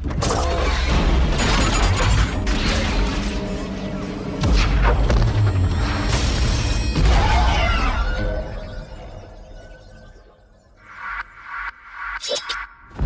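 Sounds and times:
dramatic music: 0.4 - 10.1.

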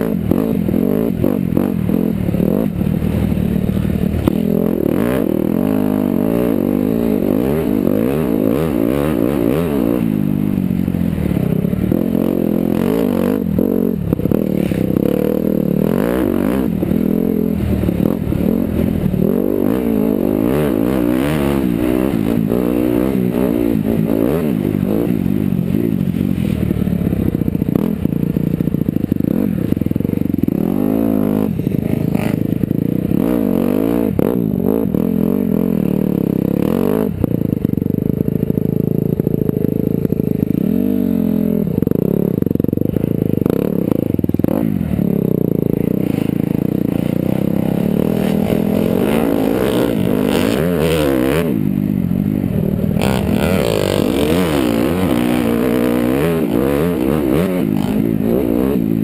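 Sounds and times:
dirt bike engine revving: 0.0 - 59.0.

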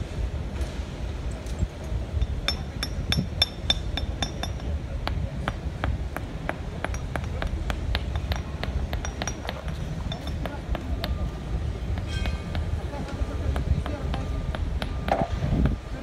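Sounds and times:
hammers clinking on stone: 2.2 - 11.3.

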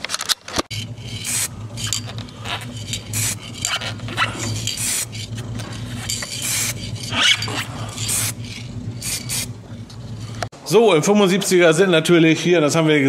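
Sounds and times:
steady low hum: 0.6 - 10.8
aerosol spray hissing: 1.2 - 1.6, 2.5 - 3.4, 4.5 - 5.2, 5.9 - 6.8, 7.9 - 8.4, 9.0 - 9.5.

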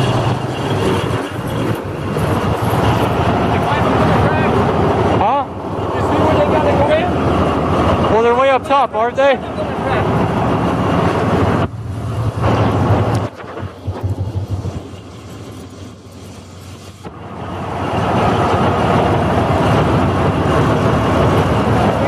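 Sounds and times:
shovel engine running: 0.0 - 22.0.

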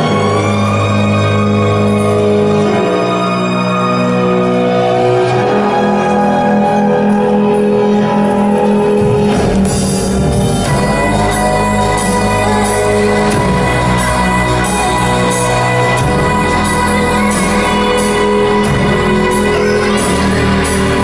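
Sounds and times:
deep bass: 0.0 - 21.0
music with held chords: 0.0 - 21.0.

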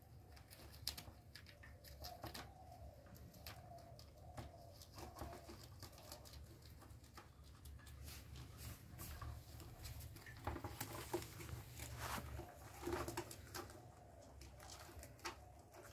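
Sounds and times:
rabbits chewing and crunching: 0.0 - 15.9
leaves rustling: 10.8 - 13.4.

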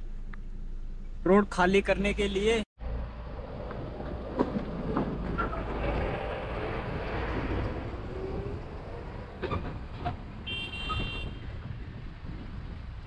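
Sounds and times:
car engine and road noise: 0.0 - 13.0
dump truck passing: 2.8 - 10.5.

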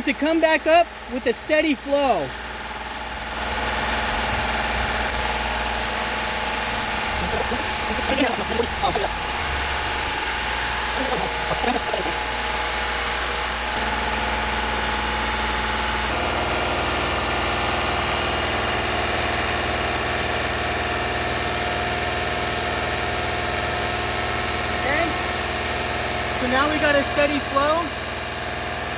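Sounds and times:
car engine idling: 1.9 - 19.8.

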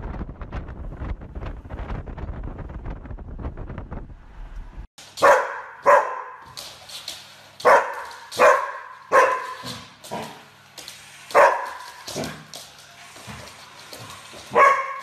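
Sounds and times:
wind buffeting microphone: 0.0 - 4.9
dog barking: 5.2 - 6.5, 7.6 - 9.8, 11.3 - 11.9, 14.5 - 15.0.

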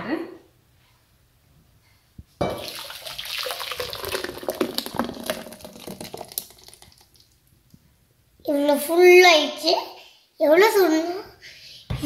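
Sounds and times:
thick drink pouring into bowl: 2.5 - 7.4.

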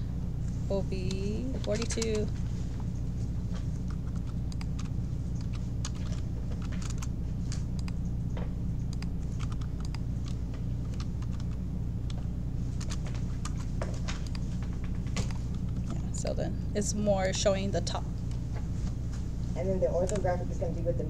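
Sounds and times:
steady low hum: 0.0 - 21.0
keyboard typing: 0.8 - 2.4, 3.7 - 8.1, 8.8 - 14.6.

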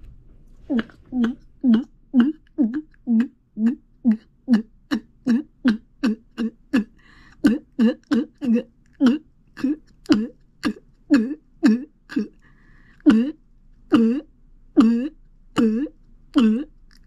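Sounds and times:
throat glugging sounds: 0.7 - 12.3.

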